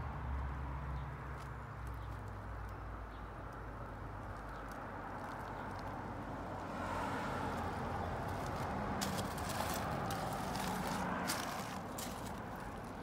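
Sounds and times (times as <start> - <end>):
outdoor background rumble: 0.0 - 13.0
footsteps on gravel: 7.4 - 13.0.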